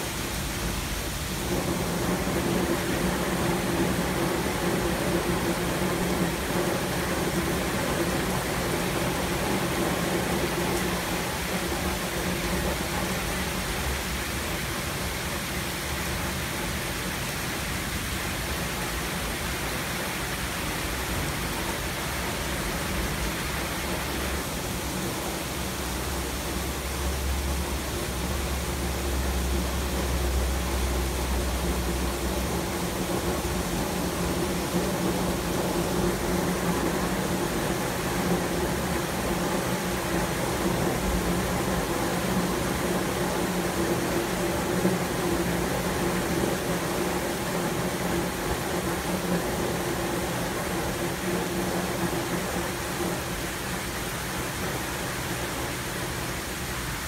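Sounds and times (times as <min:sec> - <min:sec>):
heavy rain hissing: 0:00.0 - 0:57.0
thunder rumbling: 0:00.7 - 0:14.1.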